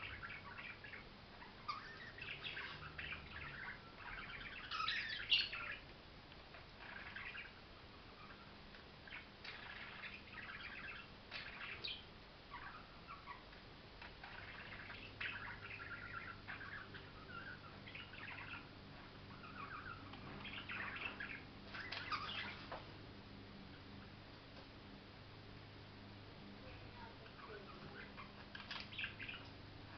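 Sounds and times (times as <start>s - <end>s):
budgerigar warbling and chattering: 0.0s - 5.8s, 6.5s - 22.7s, 27.0s - 29.5s.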